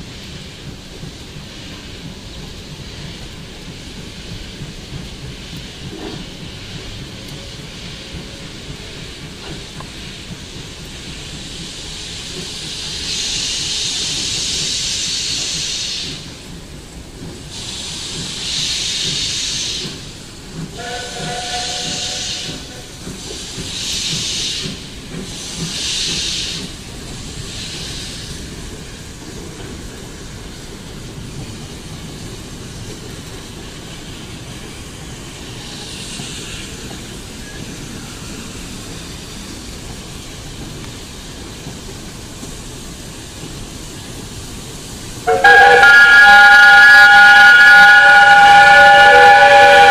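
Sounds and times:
faint steam hiss: 0.0s - 45.8s
steam locomotive steam blasts: 0.0s - 49.9s
train whistle toot: 20.8s - 22.9s, 45.3s - 49.9s.

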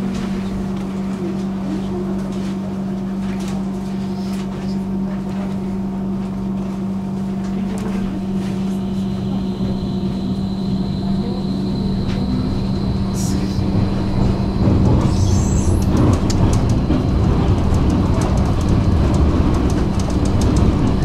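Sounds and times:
tram humming and rumbling: 0.0s - 21.0s
thin high whine: 8.2s - 16.1s.

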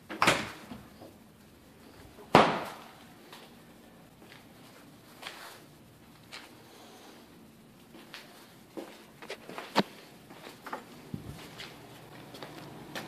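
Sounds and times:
hard bangs with ringing decay: 2.3s - 2.9s.

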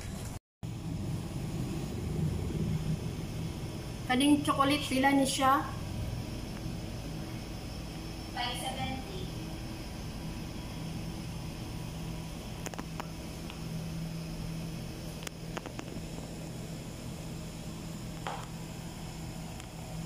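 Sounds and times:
low hum of cooling machinery: 0.0s - 20.0s.

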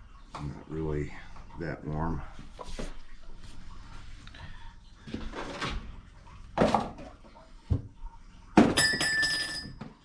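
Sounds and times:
ringing metallic clink: 8.8s - 9.8s.

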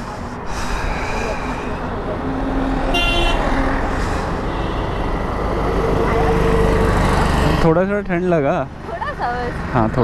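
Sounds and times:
wind and road noise: 0.0s - 10.0s
motorcycle horn toot: 2.9s - 3.4s.

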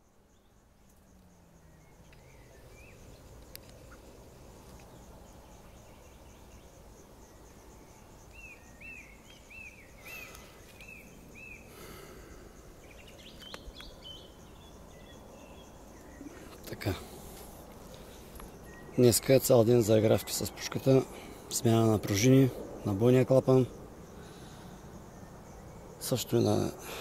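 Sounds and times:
insects chirping: 0.0s - 27.0s
songbird whistling: 18.6s - 19.0s.

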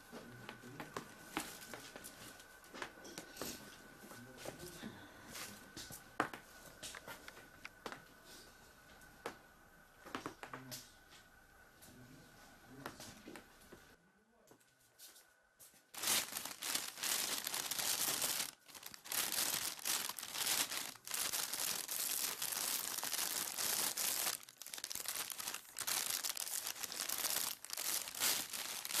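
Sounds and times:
plastic film crinkling and tearing: 16.0s - 29.0s.

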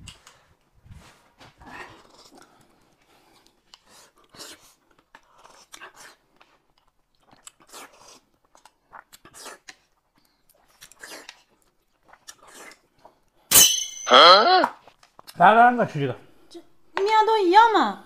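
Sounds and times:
person chewing: 1.7s - 13.4s
slurping soup from spoon: 7.3s - 13.2s.

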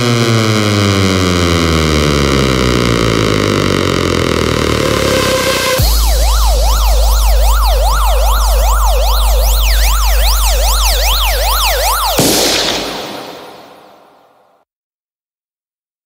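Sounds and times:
deep bass tone: 0.0s - 11.5s
electronic siren wail: 0.0s - 14.4s.

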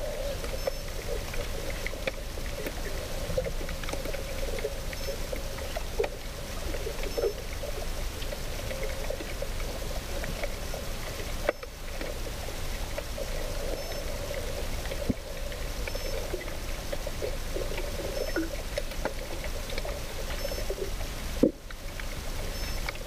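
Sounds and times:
hum: 0.0s - 23.0s
small clicks and ticks: 0.0s - 23.0s
underwater water noise: 0.0s - 23.0s.

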